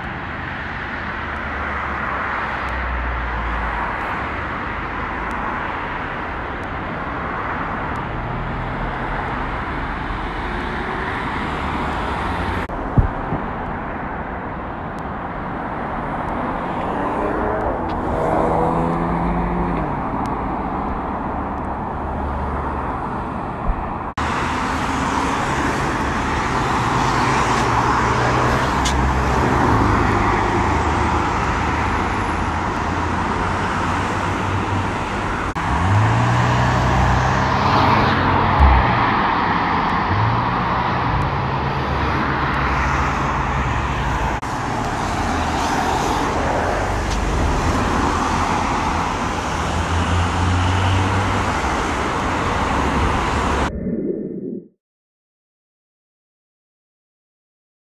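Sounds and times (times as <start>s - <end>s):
traffic tyres and engines rushing: 0.0s - 54.6s
low thump: 12.9s - 13.5s
car engines accelerating: 16.0s - 53.7s.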